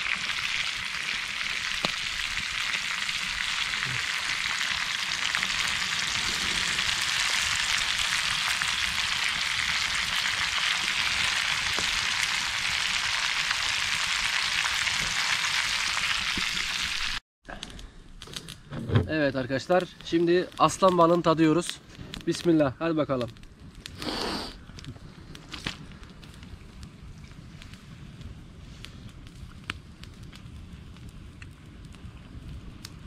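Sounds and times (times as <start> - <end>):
fish frying in a pan: 0.0 - 17.2.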